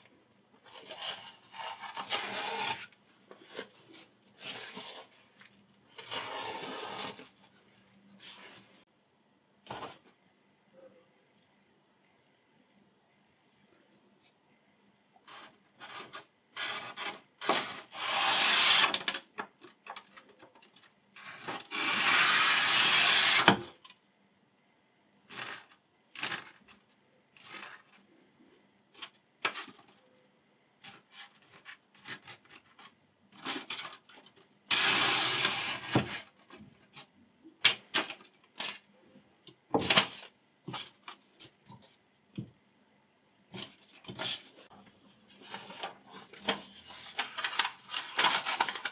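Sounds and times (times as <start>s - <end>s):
knife slicing paper: 0.7s - 2.9s, 6.0s - 7.2s, 16.6s - 19.2s, 21.3s - 23.6s, 34.7s - 36.1s
paper rustling: 43.5s - 48.9s.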